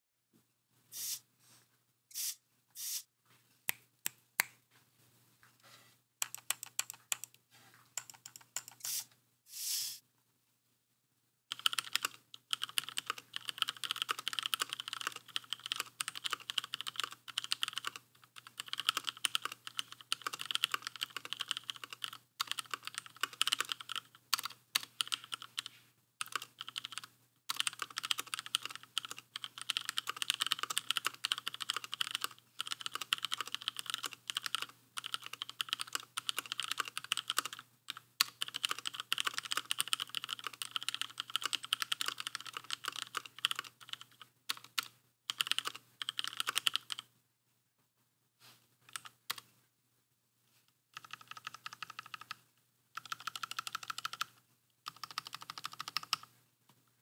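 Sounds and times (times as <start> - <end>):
mechanical keyboard typing: 6.2 - 7.4, 8.0 - 9.0, 11.5 - 47.1, 51.0 - 52.4, 53.0 - 56.3.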